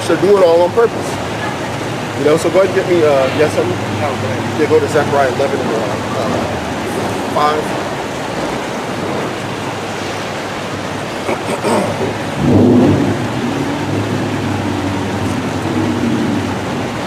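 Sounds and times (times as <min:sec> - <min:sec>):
rushing background noise: 0:00.0 - 0:17.0.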